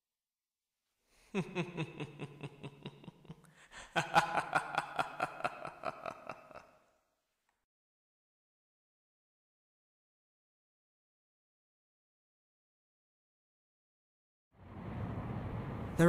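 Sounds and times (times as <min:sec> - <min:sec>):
man laughing low: 0:01.3 - 0:06.8.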